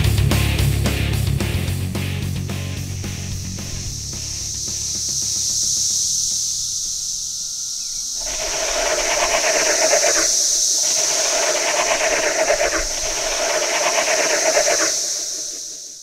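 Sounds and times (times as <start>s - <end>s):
lower pulsing cicada buzz: 1.8s - 16.0s
cicadas high-pitched drone: 2.2s - 16.0s.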